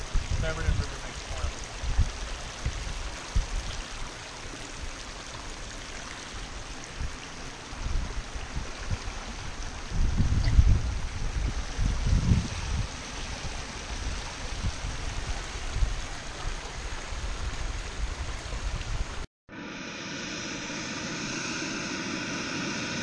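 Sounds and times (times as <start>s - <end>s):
creek rushing and splashing: 0.0s - 19.3s
camping stove hissing: 19.5s - 23.0s.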